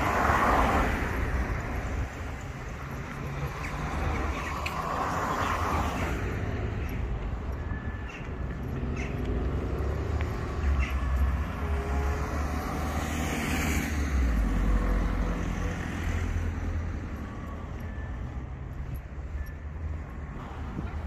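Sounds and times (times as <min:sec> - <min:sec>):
low traffic rumble: 0:00.0 - 0:21.0
car passing: 0:08.6 - 0:17.6.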